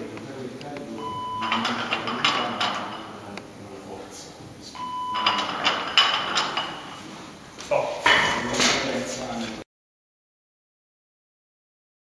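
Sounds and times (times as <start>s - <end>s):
short electronic beep: 1.0s - 1.6s, 4.8s - 5.4s
barbell knocks: 5.2s - 7.0s.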